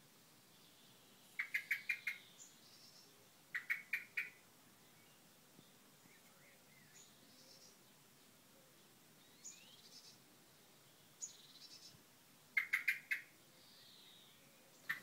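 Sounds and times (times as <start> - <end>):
faint high bird calls: 0.6 - 5.2, 12.6 - 15.0
blackbird chuck calls: 1.4 - 4.4, 12.5 - 13.3, 14.8 - 15.0.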